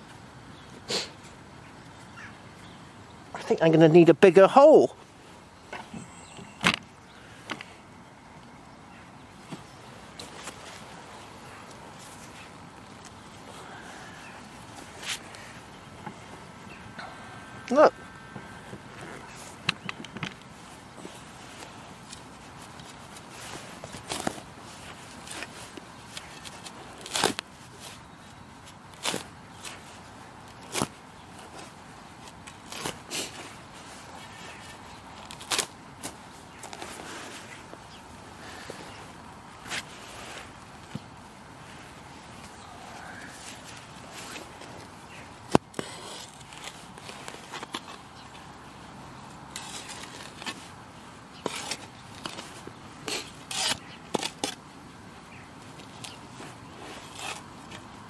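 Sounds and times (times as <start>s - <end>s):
spade scraping through soil: 51.4s - 54.6s.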